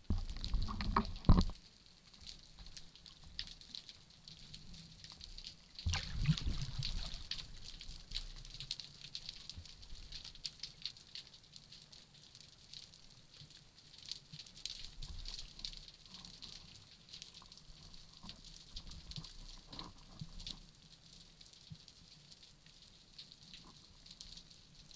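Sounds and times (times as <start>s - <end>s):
underwater clicks and pops: 0.1s - 1.6s, 5.8s - 7.2s.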